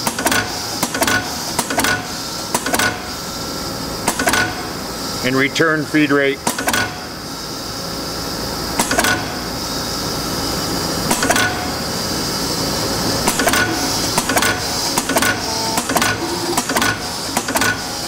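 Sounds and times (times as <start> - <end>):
drilling machine motor whirring: 7.0 - 18.0
machine clicking: 13.2 - 17.8.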